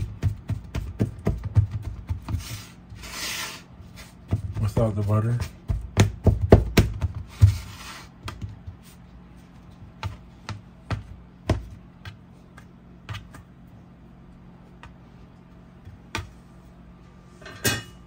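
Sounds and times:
scraper scraping plate: 2.4s - 4.2s.

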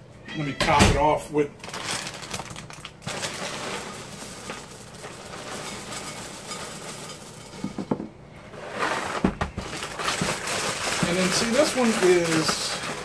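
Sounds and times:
cereal pouring into bowl: 1.7s - 7.7s, 8.8s - 13.0s.

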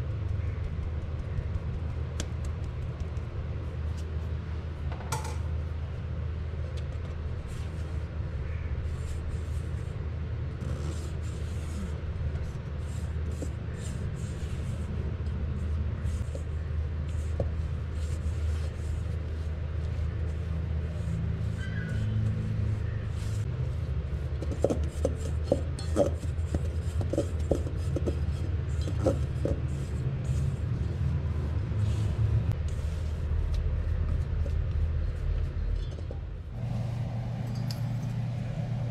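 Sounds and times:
steady low rumble: 29.8s - 38.9s.

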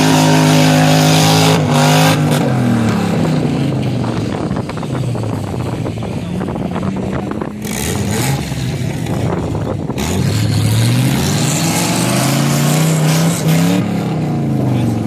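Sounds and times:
engine revving hard: 0.0s - 3.7s, 7.6s - 9.2s, 9.9s - 15.0s.

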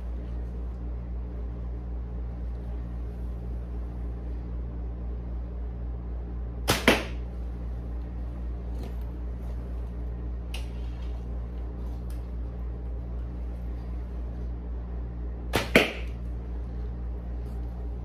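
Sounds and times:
low hum: 0.0s - 18.0s
arrow striking: 6.6s - 7.3s, 15.5s - 16.2s.

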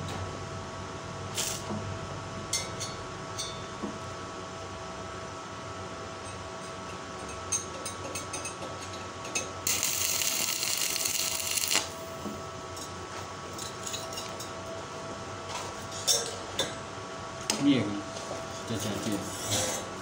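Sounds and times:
crackling hissing welding arc: 1.3s - 1.7s, 9.6s - 12.1s.

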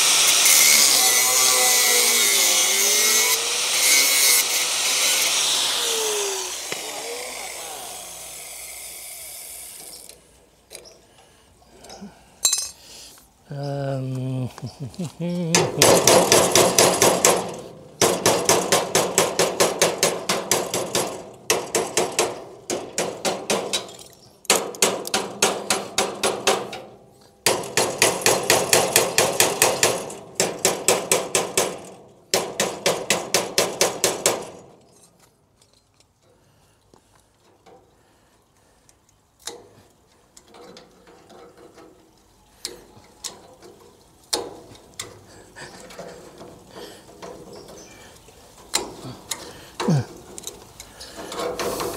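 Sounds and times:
hammer beating on metal: 15.5s - 23.8s, 24.5s - 26.8s.

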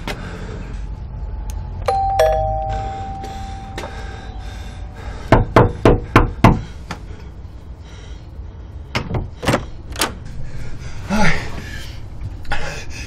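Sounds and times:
doorbell chime: 1.9s - 5.0s.

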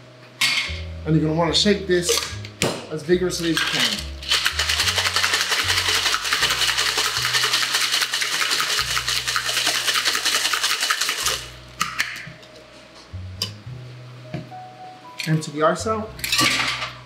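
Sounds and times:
ice rattling in cocktail shaker: 3.4s - 11.5s.

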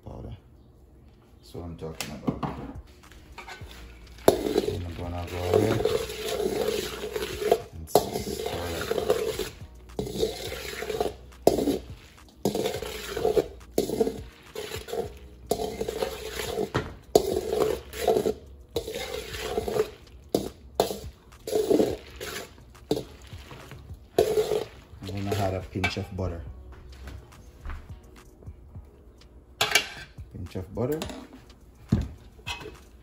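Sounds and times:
spoon scraping metal bowl: 3.2s - 26.2s.

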